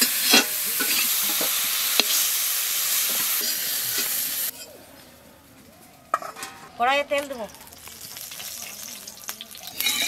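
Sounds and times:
vegetables sizzling in hot oil: 0.0 - 4.6, 6.8 - 10.0
metal ladle clinking on pan: 9.7 - 10.0.

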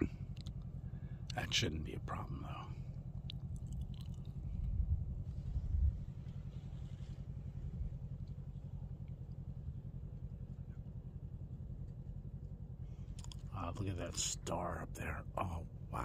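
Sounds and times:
atv engine idling: 0.0 - 16.0.

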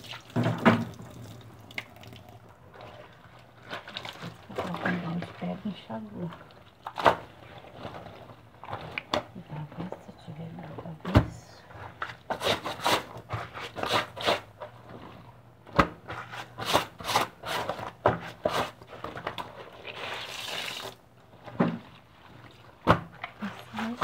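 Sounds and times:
wet clothes scrubbed by hand: 19.6 - 22.8, 23.4 - 24.0.

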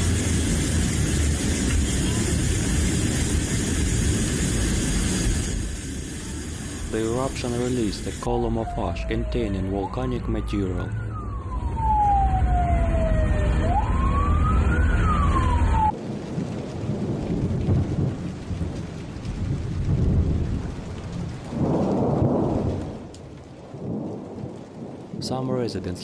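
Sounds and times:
noisy toneless rumble: 0.0 - 15.6
deep rumble: 0.0 - 15.9
siren wailing: 6.9 - 16.0.

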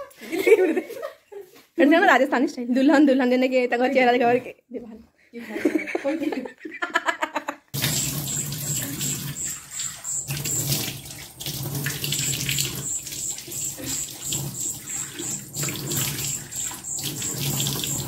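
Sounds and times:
water splashing: 7.8 - 18.0.

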